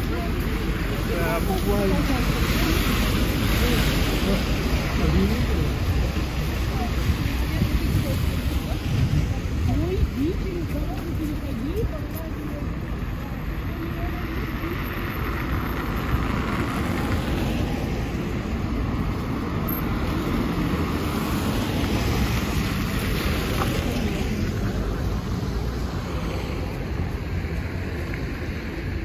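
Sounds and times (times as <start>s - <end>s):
steady low traffic rumble: 0.0s - 29.0s.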